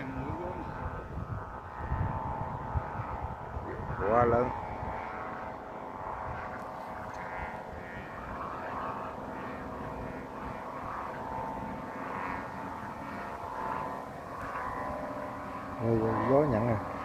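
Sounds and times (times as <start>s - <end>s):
kite hummers droning: 0.0s - 17.0s
low wind rumble: 0.0s - 17.0s.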